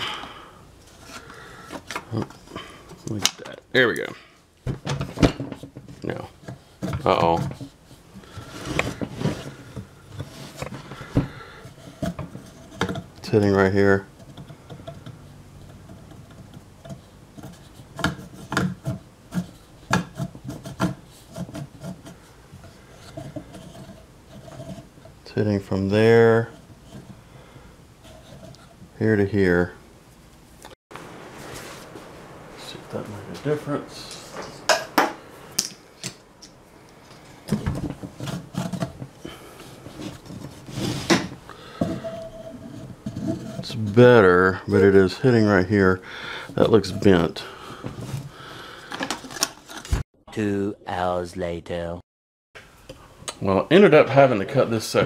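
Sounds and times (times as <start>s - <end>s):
metal clunks and knocks: 4.6s - 7.7s, 8.8s - 13.2s
fan blade scraping and clicking: 4.8s - 27.2s, 28.0s - 29.0s, 32.9s - 45.9s, 46.5s - 50.0s
fan blade scraping metal ring: 14.0s - 27.2s, 39.9s - 45.1s, 46.5s - 47.4s.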